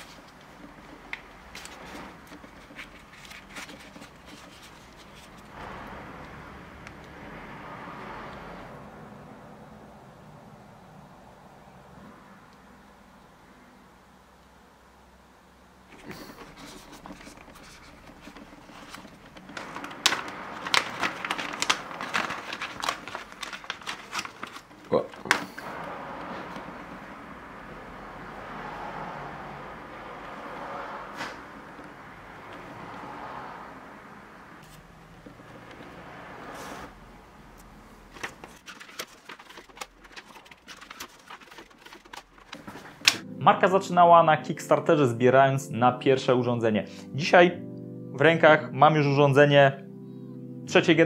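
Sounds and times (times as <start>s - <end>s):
packaging rustling and scraping: 0.0s - 5.6s, 15.9s - 27.1s, 38.1s - 43.2s
plastic bag crinkling: 0.0s - 5.6s, 15.9s - 25.8s, 38.1s - 43.2s.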